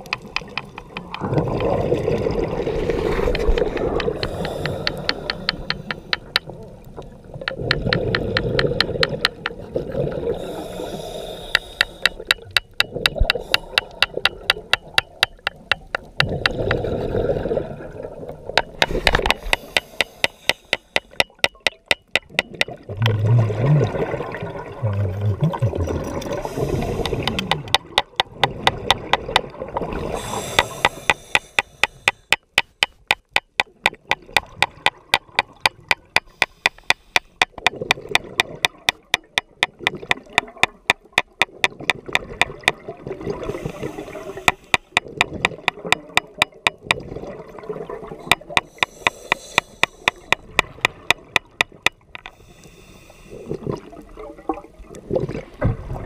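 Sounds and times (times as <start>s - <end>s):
exhaled bubbles: 0.0s - 11.1s, 12.0s - 19.8s, 22.3s - 31.4s, 37.5s - 52.2s, 53.3s - 56.0s
diver's regulator breathing: 2.9s - 6.4s, 10.3s - 12.4s, 13.2s - 14.1s, 18.9s - 21.3s, 26.3s - 27.8s, 30.1s - 32.8s, 36.2s - 37.6s, 43.4s - 45.0s, 48.3s - 50.7s, 52.2s - 53.6s.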